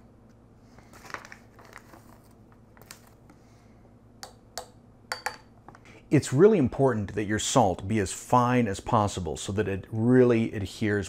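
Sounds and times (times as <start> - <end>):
plastic bag crinkling: 0.8 - 3.2
spoon clicking and tapping: 4.2 - 5.5.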